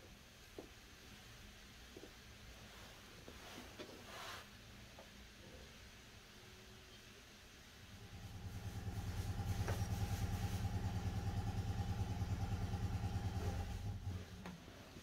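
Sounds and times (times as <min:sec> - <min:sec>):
small engine pulsing: 0:08.0 - 0:14.4.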